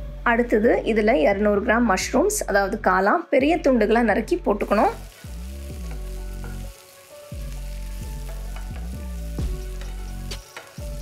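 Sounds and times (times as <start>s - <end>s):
mushrooms sizzling in hot oil: 4.2s - 11.0s.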